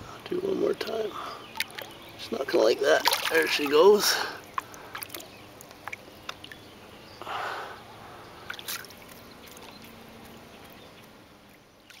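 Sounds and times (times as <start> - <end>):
fish splash: 3.0 - 3.7.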